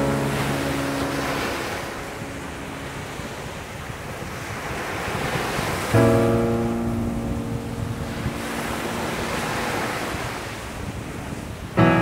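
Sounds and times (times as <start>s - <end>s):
low musical note ringing: 0.0s - 4.0s, 6.0s - 10.1s
waves breaking on sand: 0.0s - 12.0s.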